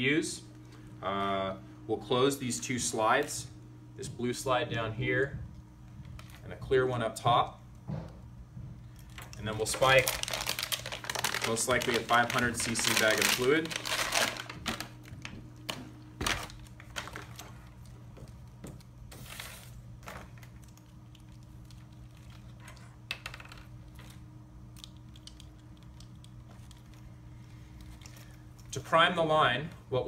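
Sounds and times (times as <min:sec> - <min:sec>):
plastic wrap crinkling and tearing: 0:09.0 - 0:17.9.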